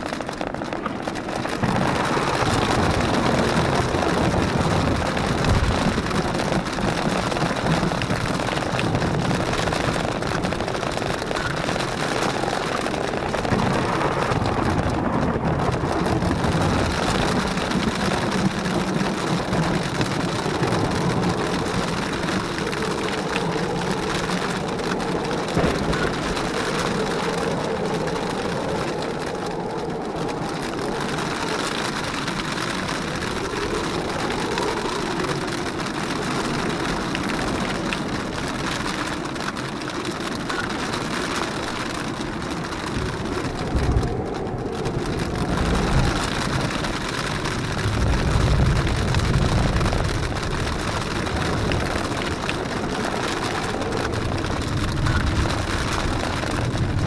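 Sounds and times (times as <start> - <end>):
low rumbles: 0.0 - 57.0
rain hissing: 0.0 - 57.0
wind: 0.0 - 57.0.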